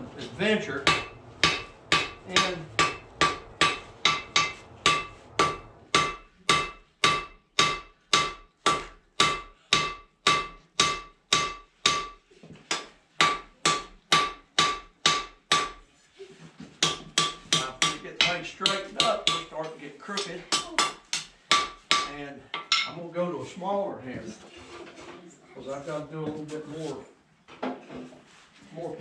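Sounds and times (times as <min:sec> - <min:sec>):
hammer ringing on anvil: 0:00.8 - 0:12.2.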